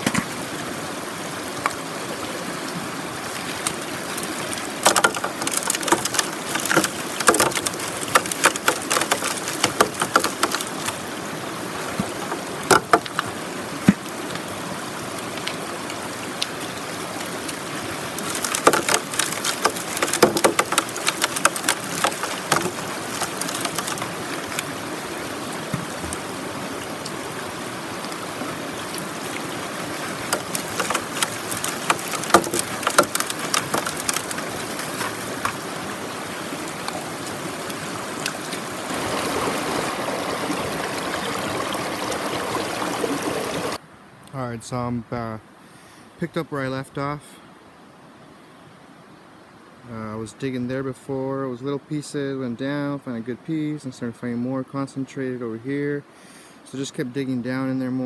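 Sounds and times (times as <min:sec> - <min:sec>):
river water rushing through sluice: 0:00.0 - 0:44.2
stones and gravel clattering: 0:03.7 - 0:11.1, 0:11.9 - 0:13.3, 0:18.0 - 0:24.7, 0:29.9 - 0:35.7.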